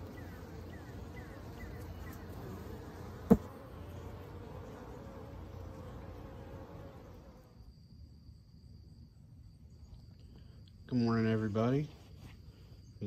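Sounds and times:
bees buzzing: 0:00.0 - 0:07.6.

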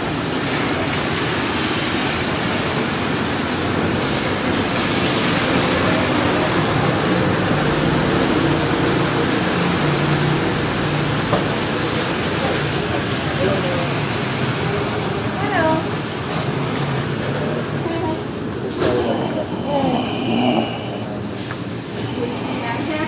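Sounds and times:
heavy rain: 0:00.0 - 0:23.0.

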